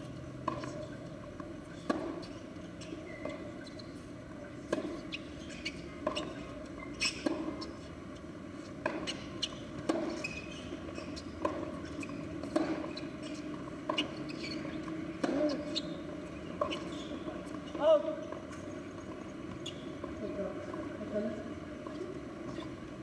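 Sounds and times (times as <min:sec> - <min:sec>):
tennis ball struck with rackets: 0:00.4 - 0:01.0, 0:01.8 - 0:03.5, 0:04.6 - 0:07.8, 0:08.8 - 0:17.6.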